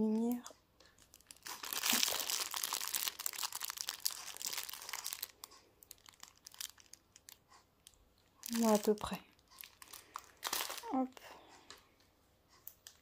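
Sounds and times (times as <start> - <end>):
plastic packaging crinkling: 0.9 - 11.2.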